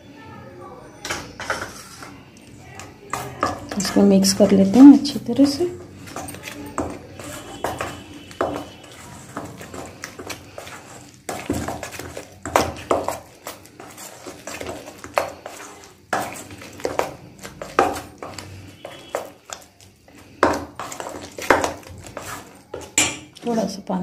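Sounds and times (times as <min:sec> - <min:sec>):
wet paste scraping and squelching: 0:01.6 - 0:23.5.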